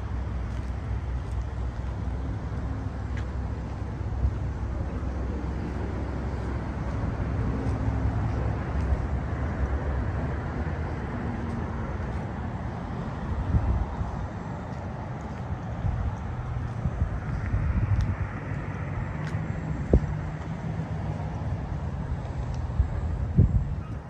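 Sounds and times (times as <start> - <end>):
traffic noise: 0.0 - 24.0
wind on microphone: 12.3 - 24.0.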